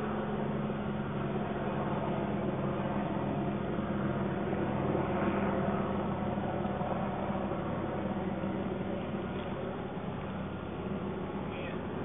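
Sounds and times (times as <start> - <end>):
low even hum: 0.0 - 12.0
steady rushing noise: 0.0 - 12.0.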